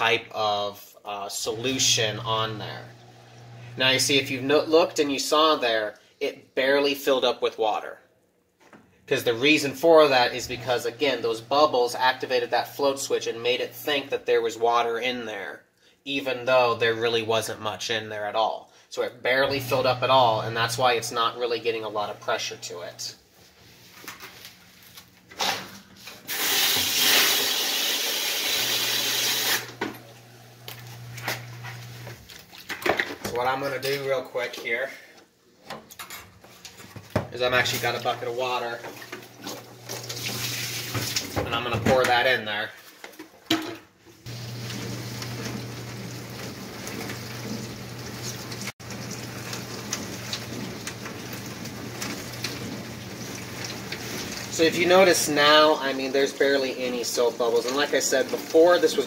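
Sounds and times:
dishwasher spraying water: 19.3 - 23.1, 26.2 - 32.2, 37.4 - 42.2, 44.3 - 59.0
water spraying against door: 26.2 - 29.8, 39.8 - 41.4.

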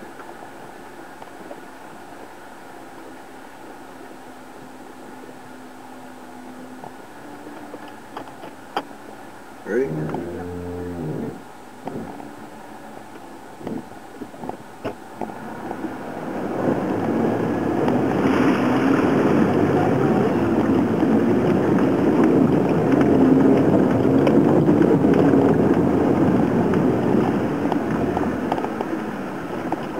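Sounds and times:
water rushing and splashing: 0.0 - 29.9
vehicle engine running: 5.2 - 14.0.

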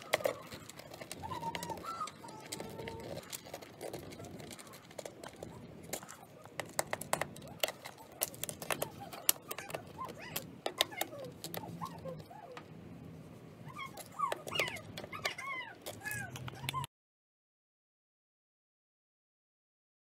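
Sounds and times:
animal whining: 0.0 - 12.7, 13.6 - 16.9
clicks and taps on plastic: 4.4 - 12.7.

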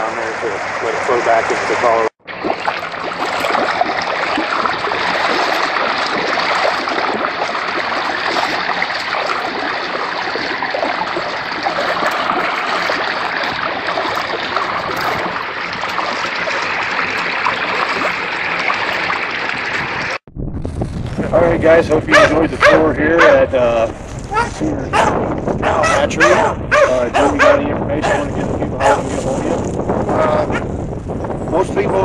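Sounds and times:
water running and babbling: 0.0 - 20.2.

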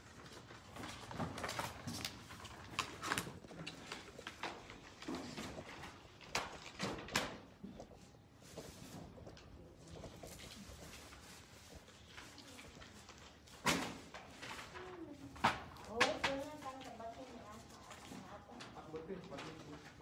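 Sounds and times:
paper rustling and swishing: 8.3 - 20.0.

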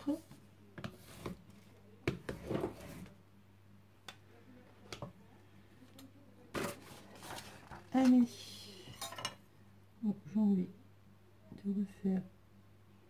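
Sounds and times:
scraping rustle: 6.6 - 8.0.

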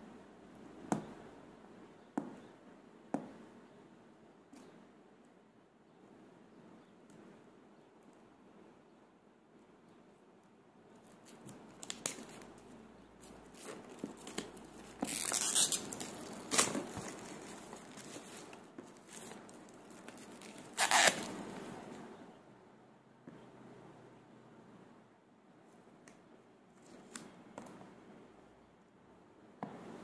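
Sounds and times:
plastic shrink-wrap crinkling and tearing: 13.5 - 21.3.

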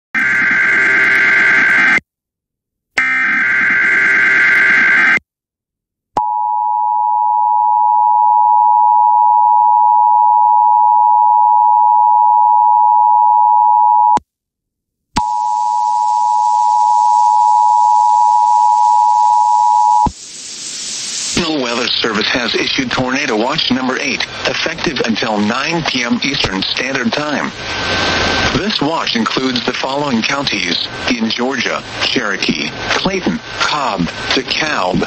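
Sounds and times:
hiss: 20.1 - 22.0.

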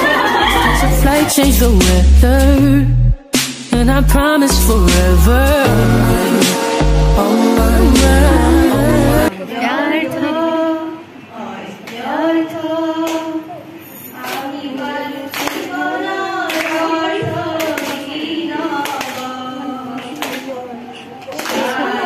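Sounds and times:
woman singing through pa: 0.0 - 2.9, 3.7 - 22.0.

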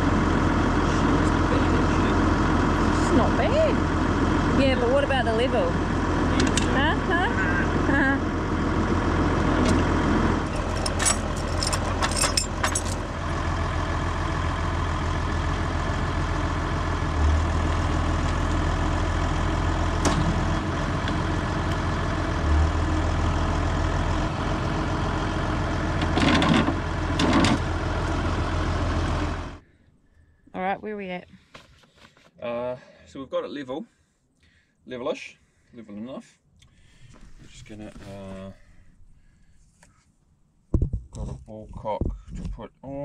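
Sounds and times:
tractor engine idling: 0.0 - 29.6.

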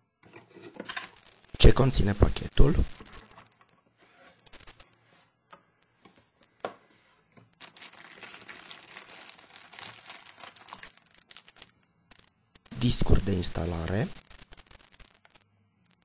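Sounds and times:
plastic sleeve crinkling: 7.5 - 12.3.

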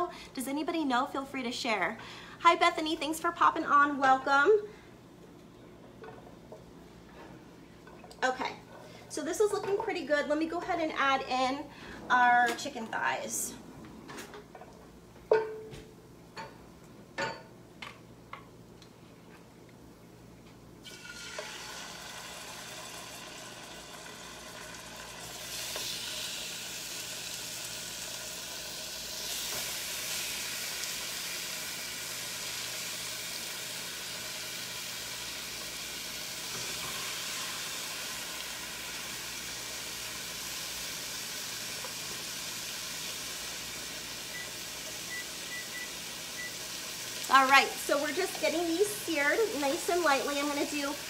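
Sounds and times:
chicken sizzling in oil: 20.8 - 51.0.

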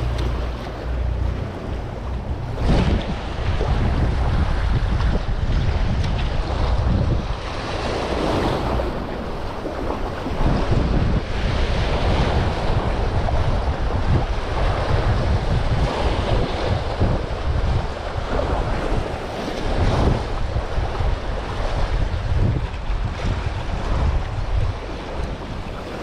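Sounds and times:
surf washing against jetty: 0.0 - 26.0
wind buffeting microphone: 0.0 - 26.0.

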